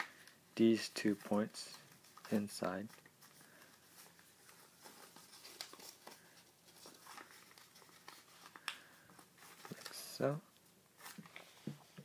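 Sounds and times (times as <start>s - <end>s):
paper rustling and crinkling: 1.0s - 10.3s.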